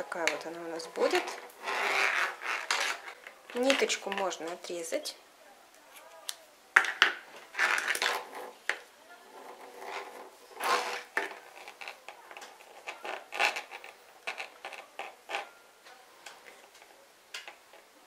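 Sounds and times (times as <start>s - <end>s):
yarn rustling: 0.0s - 4.2s, 7.3s - 15.5s.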